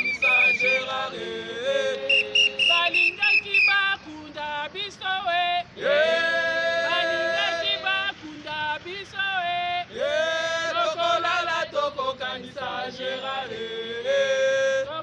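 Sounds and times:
long held call: 0.0 - 4.3
protesters chanting and singing: 0.0 - 15.0.

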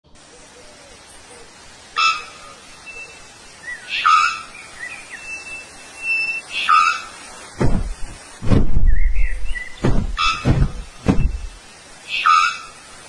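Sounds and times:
low thumps: 7.6 - 11.6
faint whistled bird notes: 8.9 - 10.4.

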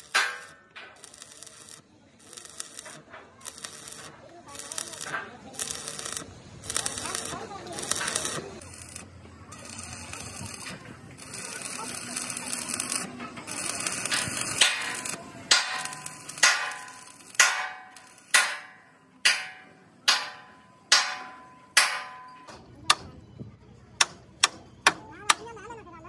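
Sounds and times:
hammer striking steel: 0.0 - 1.2, 12.8 - 23.1, 24.0 - 25.5
welding arc crackling: 0.0 - 22.2.

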